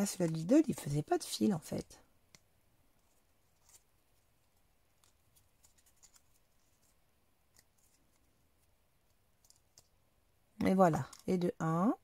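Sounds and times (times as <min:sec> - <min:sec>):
paper crinkling: 0:03.0 - 0:09.9.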